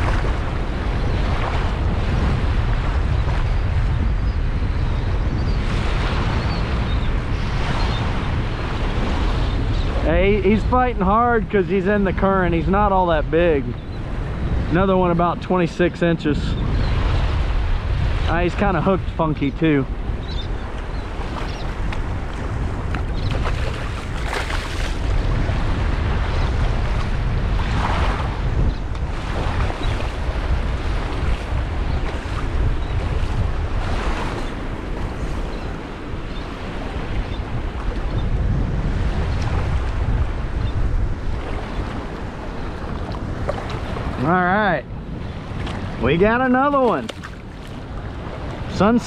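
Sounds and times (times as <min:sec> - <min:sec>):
small waves washing on shore: 0:00.0 - 0:04.7, 0:05.4 - 0:49.0
wind buffeting microphone: 0:00.0 - 0:49.0
splashing water: 0:23.3 - 0:25.1, 0:46.6 - 0:47.8.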